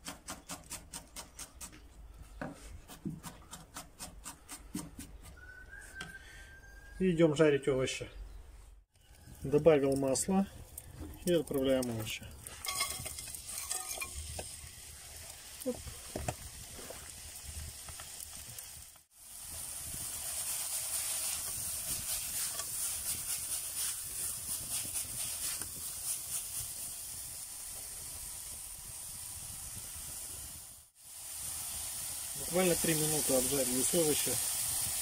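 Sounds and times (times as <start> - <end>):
vegetables sizzling in oil: 9.4 - 35.0.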